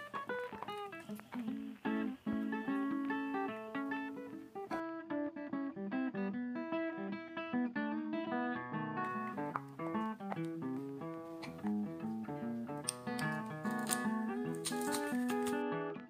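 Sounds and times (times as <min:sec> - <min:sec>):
acoustic guitar playing: 0:00.0 - 0:16.0.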